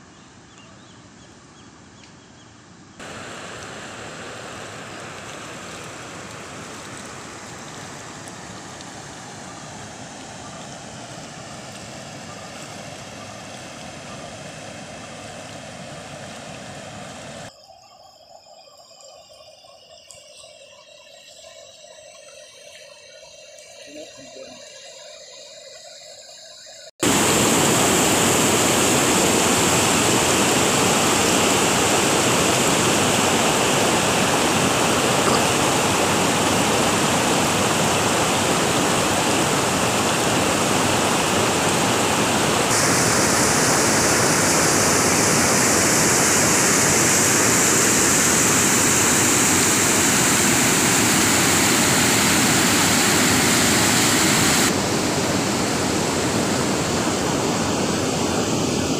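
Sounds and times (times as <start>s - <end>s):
water rushing into reservoir: 3.0s - 17.5s, 27.0s - 58.9s.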